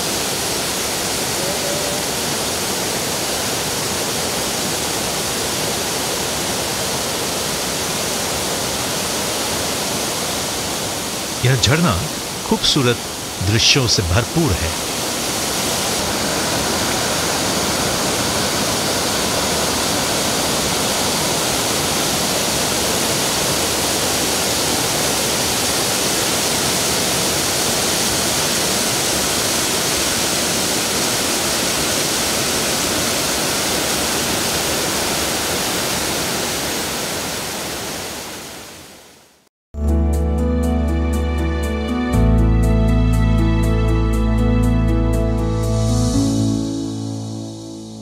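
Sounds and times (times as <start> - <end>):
waterfall rushing over rocks: 0.0 - 11.4, 12.0 - 38.9.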